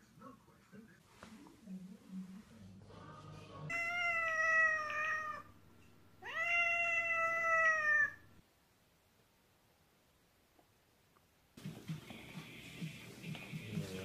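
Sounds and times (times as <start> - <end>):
cat meowing: 3.7 - 5.6, 6.2 - 8.4.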